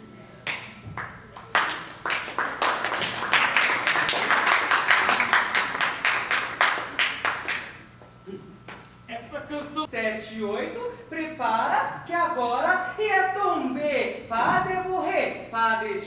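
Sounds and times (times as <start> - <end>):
crowd applauding: 0.5 - 7.9.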